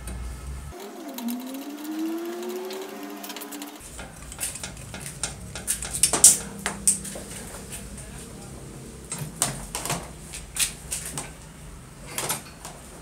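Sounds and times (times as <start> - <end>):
low whirring tone: 0.0 - 10.6
metal clicks and rattles: 3.8 - 7.9.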